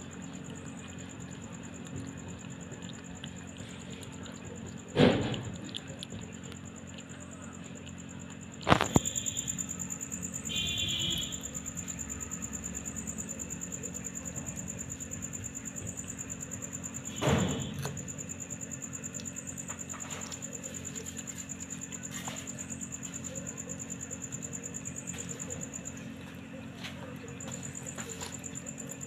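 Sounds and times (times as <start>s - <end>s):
crickets chirping: 0.0s - 29.0s
thump: 5.0s - 5.5s, 17.1s - 18.0s.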